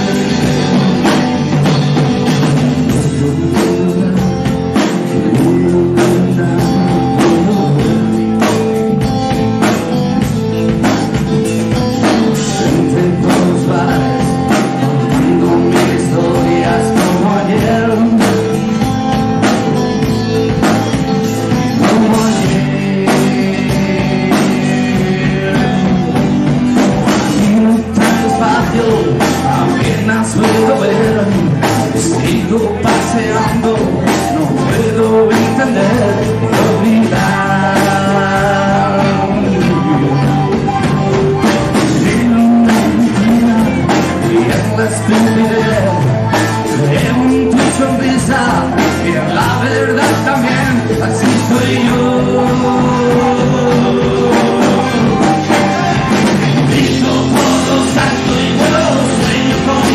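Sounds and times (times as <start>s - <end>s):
rock music with vocals: 0.0s - 59.9s.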